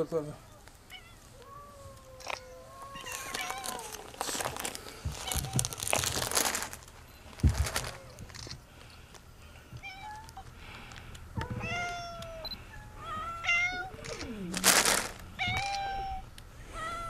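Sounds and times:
cats meowing: 0.5 - 6.7, 9.7 - 10.6, 11.4 - 17.0
loud rustle: 2.2 - 8.6, 14.1 - 15.8.

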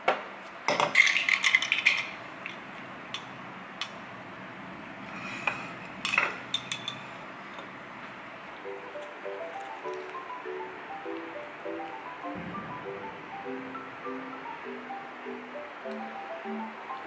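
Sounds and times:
glassware and dishes clinking: 0.7 - 3.3, 5.2 - 7.8.

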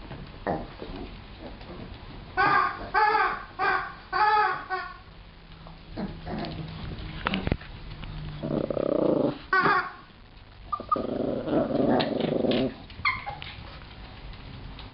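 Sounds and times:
dog growling: 0.4 - 3.1, 5.9 - 6.8, 8.4 - 9.8, 10.7 - 12.9.

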